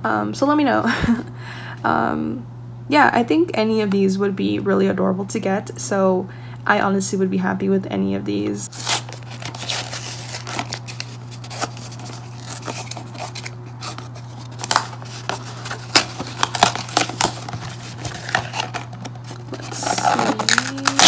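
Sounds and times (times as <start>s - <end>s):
steady low hum: 0.0s - 21.0s
cardboard box tearing open: 8.7s - 21.0s
cardboard scraping and crinkling: 8.7s - 21.0s.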